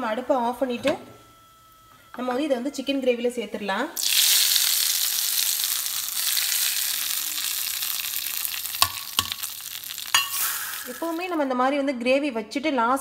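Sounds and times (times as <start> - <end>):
hot oil sizzling in gravy: 4.0 - 11.4.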